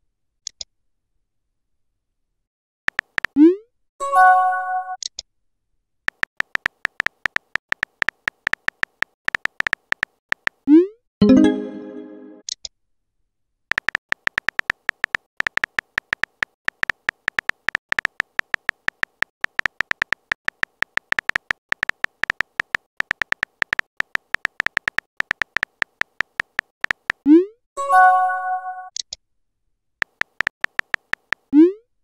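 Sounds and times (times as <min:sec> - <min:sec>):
keyboard tap clicks: 0:02.9 - 0:03.4, 0:06.1 - 0:10.6, 0:13.7 - 0:27.2, 0:30.0 - 0:31.5.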